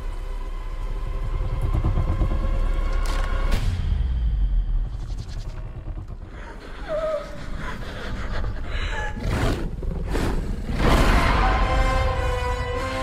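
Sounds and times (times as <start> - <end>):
deep low rumble: 0.0 - 11.6.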